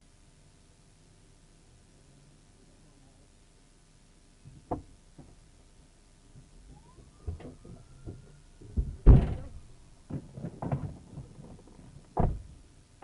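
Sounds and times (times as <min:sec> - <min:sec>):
loud sharp thud: 0:08.8 - 0:09.6.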